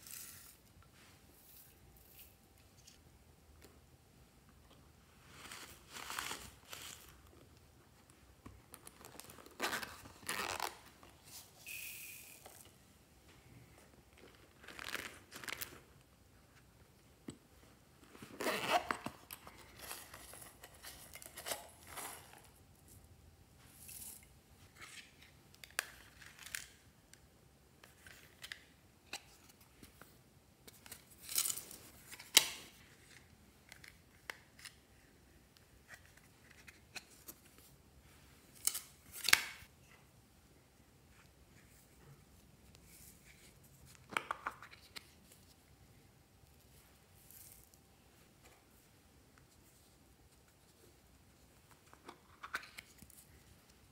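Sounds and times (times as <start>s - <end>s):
zippers opening: 9.5s - 10.9s, 18.3s - 19.2s
beads tipped into glass dishes: 11.6s - 12.6s.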